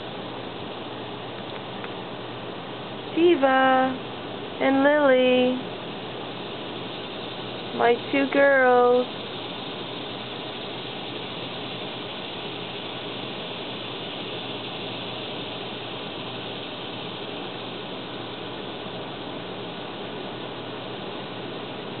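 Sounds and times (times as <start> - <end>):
steady background hiss: 0.0 - 22.0.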